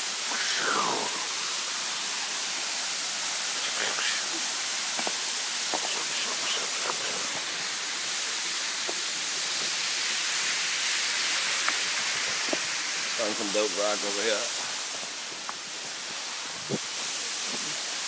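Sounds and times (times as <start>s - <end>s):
waterfall rushing onto rock: 0.0s - 18.0s.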